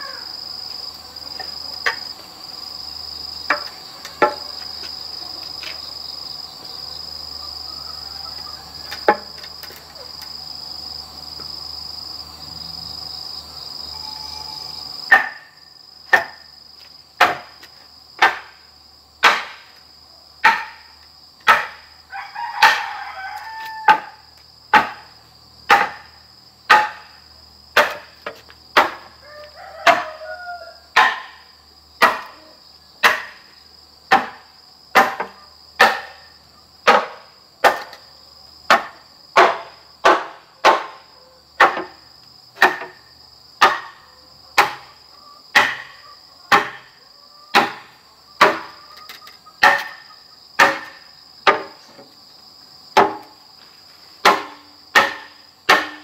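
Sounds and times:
rooster crowing: 0:00.0 - 0:00.4, 0:07.3 - 0:09.2, 0:13.9 - 0:14.8, 0:22.0 - 0:24.3, 0:29.1 - 0:31.0, 0:44.1 - 0:47.9
insects whining: 0:00.0 - 0:56.0
machete chopping wood: 0:15.1 - 0:16.5, 0:17.2 - 0:18.6, 0:19.2 - 0:19.8, 0:20.4 - 0:21.9, 0:22.6 - 0:22.9, 0:23.9 - 0:27.2, 0:27.8 - 0:29.2, 0:29.8 - 0:30.2, 0:31.0 - 0:31.4, 0:32.0 - 0:32.4, 0:33.0 - 0:33.5, 0:34.1 - 0:38.0, 0:38.7 - 0:41.0, 0:41.6 - 0:42.0, 0:42.6 - 0:44.0, 0:44.6 - 0:48.8, 0:49.6 - 0:51.8, 0:53.0 - 0:53.4, 0:54.2 - 0:56.0.

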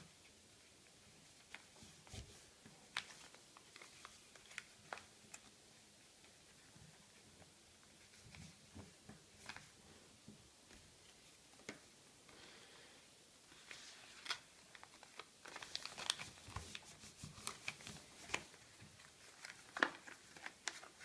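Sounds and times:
paper rustling and crackling: 0:00.8 - 0:05.6, 0:07.4 - 0:09.8, 0:13.5 - 0:21.0.

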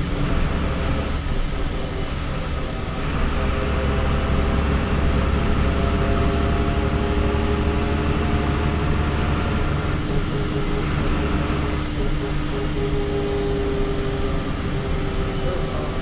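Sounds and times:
bus engine low rumble: 0:00.0 - 0:16.0
multi-tone whine: 0:00.0 - 0:16.0.

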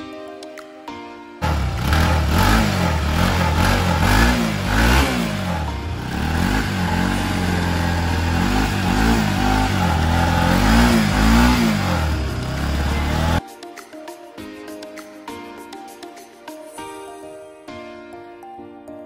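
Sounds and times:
motorcycle engine revving: 0:01.4 - 0:13.4.

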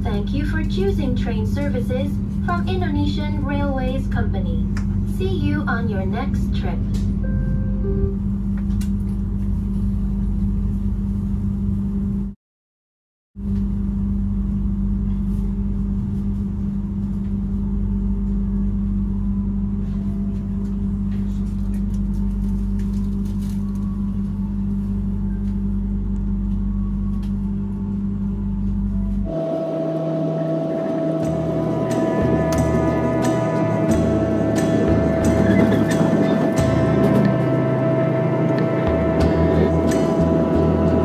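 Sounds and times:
train rumbling at speed: 0:00.0 - 0:12.3, 0:28.2 - 0:41.0.

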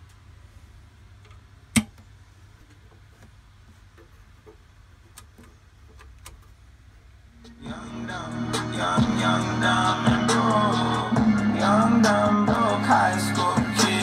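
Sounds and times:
low steady hum: 0:00.0 - 0:14.0
music through speakers: 0:07.5 - 0:14.0.

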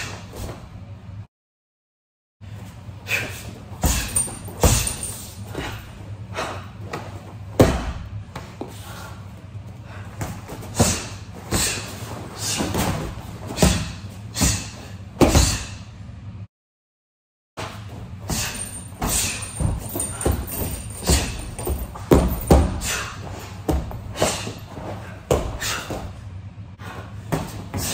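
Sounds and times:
punches thudding on punching bags: 0:03.8 - 0:05.8, 0:07.6 - 0:08.2, 0:10.2 - 0:15.7, 0:18.2 - 0:24.6.

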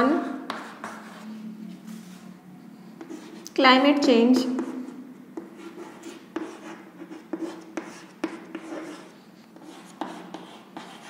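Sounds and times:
chalk scratching on chalkboard: 0:00.0 - 0:01.3, 0:02.9 - 0:03.6, 0:04.4 - 0:11.0
chalk tapping on chalkboard: 0:00.4 - 0:01.1, 0:04.4 - 0:11.0.

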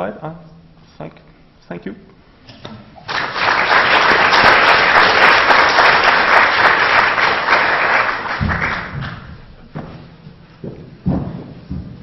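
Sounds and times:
audience applause: 0:03.0 - 0:09.4.

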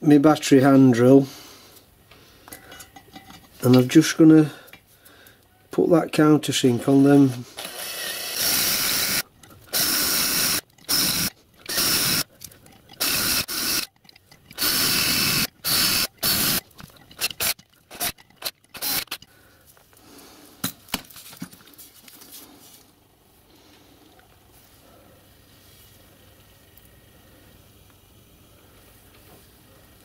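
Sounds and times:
battery drill bursts: 0:07.6 - 0:12.3, 0:13.0 - 0:13.9, 0:14.6 - 0:16.6, 0:17.2 - 0:19.2.

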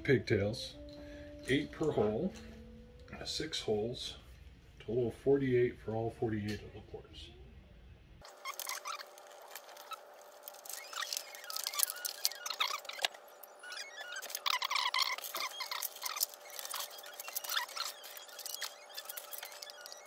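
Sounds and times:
wire rubbing squeaks: 0:08.2 - 0:20.0
wire rustling: 0:08.2 - 0:20.0
plastic connectors clattering: 0:08.3 - 0:20.0.

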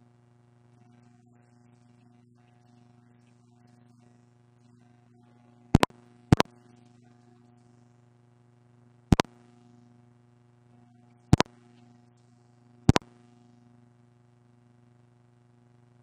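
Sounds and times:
low electrical hum: 0:00.0 - 0:16.0
sharp double clicks: 0:05.8 - 0:06.5.

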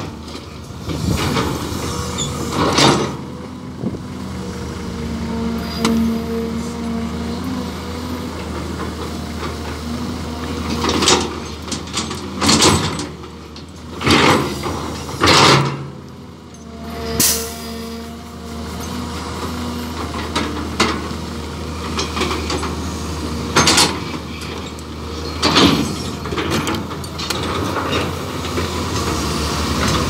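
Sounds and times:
diesel engine running: 0:00.0 - 0:30.0
hydraulic whine: 0:04.8 - 0:07.5.

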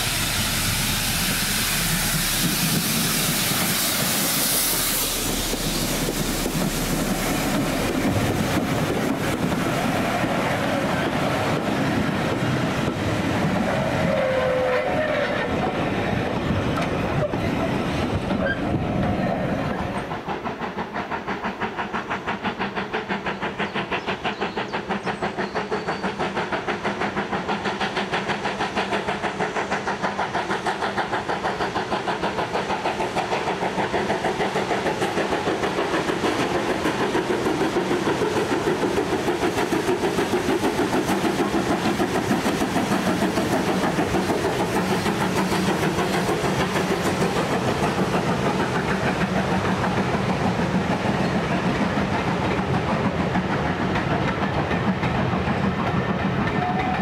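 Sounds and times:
steam locomotive exhaust beat: 0:00.0 - 0:57.0
train carriages clattering over rails: 0:15.5 - 0:57.0.

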